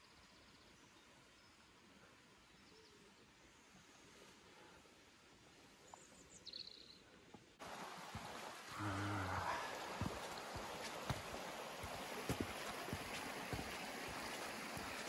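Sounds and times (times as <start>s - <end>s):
bird chirp: 5.8s - 7.1s
stream running over stones: 7.4s - 15.0s
footsteps on path: 7.6s - 15.0s.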